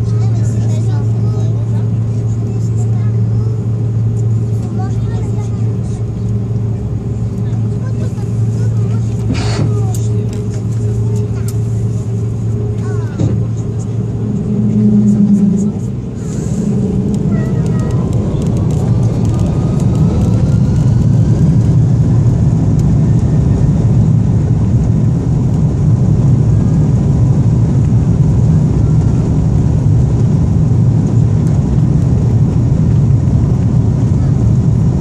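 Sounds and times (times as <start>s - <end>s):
airplane cabin engine rumble: 0.0s - 35.0s
faint rising whine: 8.6s - 28.2s.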